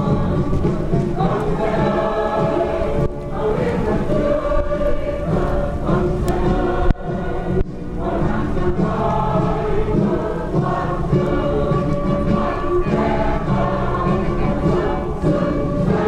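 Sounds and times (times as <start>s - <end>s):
choir singing with music: 0.0s - 16.0s.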